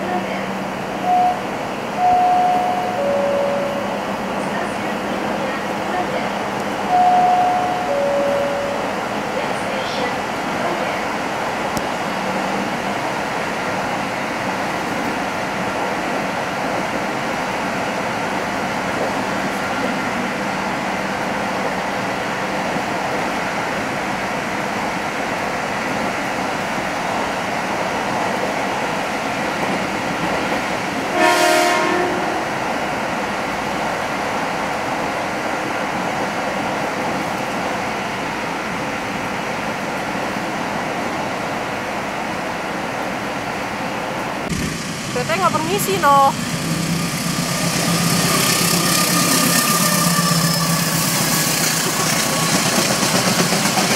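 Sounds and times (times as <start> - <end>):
train running noise: 0.0 - 53.9
train horn blast: 31.1 - 32.5.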